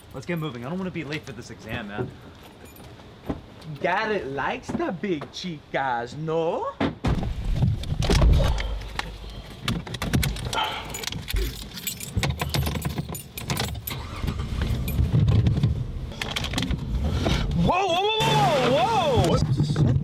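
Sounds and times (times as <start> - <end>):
car keys jangling: 2.4 - 3.3, 9.8 - 15.2.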